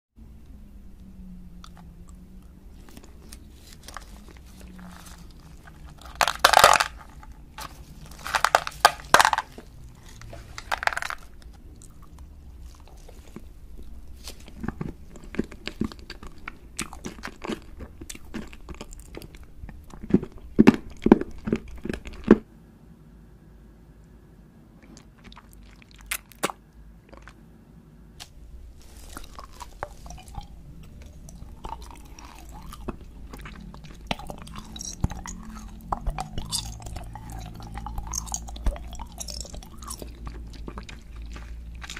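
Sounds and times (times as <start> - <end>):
chewing crunches: 1.6 - 22.4, 24.8 - 27.4, 28.2 - 41.9
loud crunching bites: 28.2 - 41.9.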